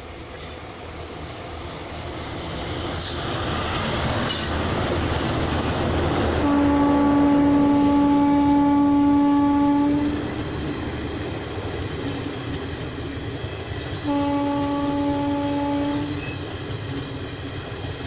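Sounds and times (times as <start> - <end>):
train wheels rumbling on rails: 0.0 - 18.0
locomotive horn: 6.4 - 10.2, 14.0 - 16.4.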